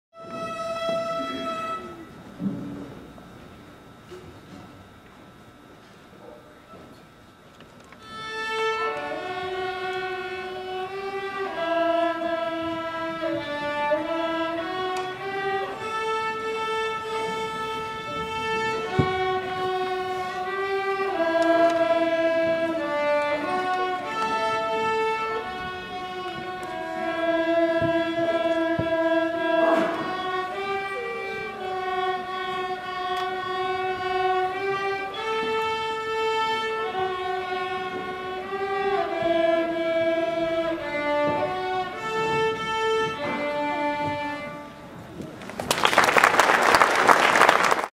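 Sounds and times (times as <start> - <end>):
bowed strings playing slow melody: 8.0 - 45.0.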